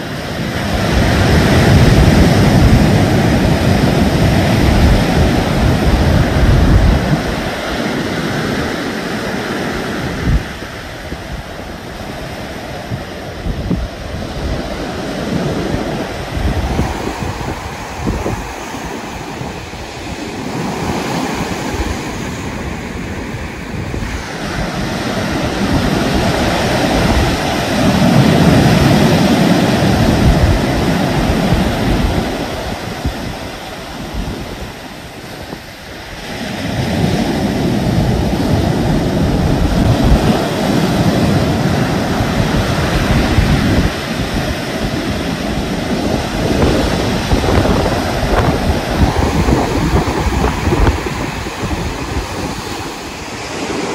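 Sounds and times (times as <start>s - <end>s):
surf breaking on beach: 0.0s - 53.9s
wind rumble on microphone: 0.0s - 53.9s.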